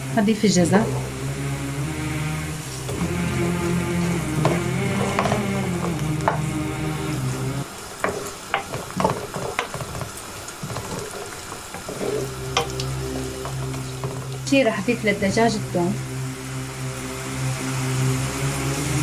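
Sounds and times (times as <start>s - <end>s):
steady low hum: 0.0s - 19.0s
vegetables sizzling in hot oil: 0.0s - 19.0s
wooden spoon scraping a pot: 2.5s - 14.5s.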